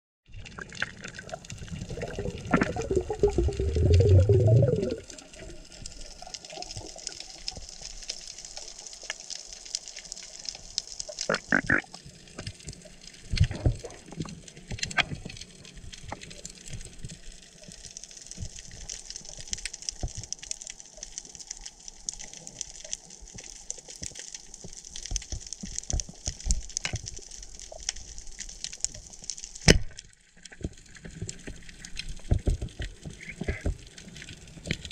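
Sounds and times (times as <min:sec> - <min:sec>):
water bubbling underwater: 0:00.3 - 0:08.0, 0:11.2 - 0:12.4
crackling hiss: 0:00.4 - 0:34.9.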